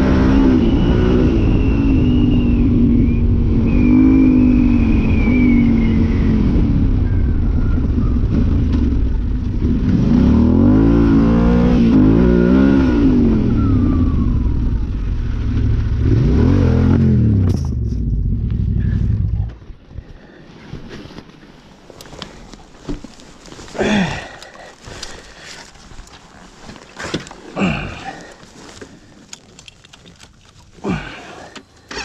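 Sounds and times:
motorcycle engine revving: 0.0 - 19.6.

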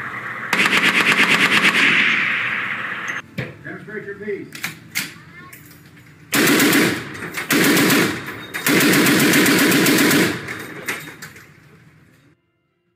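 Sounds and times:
heavy machine gun bursts: 0.5 - 2.2, 6.3 - 11.3
gunfire echo: 0.5 - 2.6, 6.3 - 10.7.

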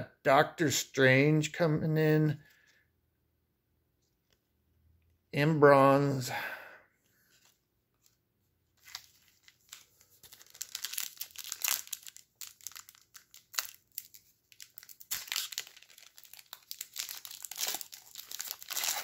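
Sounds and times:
card pack wrapper crinkling: 8.8 - 19.0.

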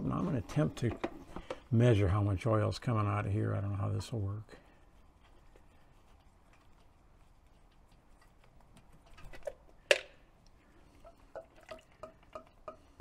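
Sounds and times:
oil dripping into plastic cup: 9.4 - 13.0.

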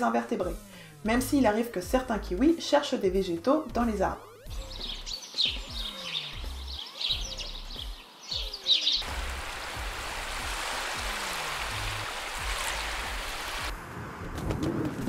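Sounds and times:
birds chirping: 4.2 - 13.7
surf rushing on shore: 9.0 - 13.7.

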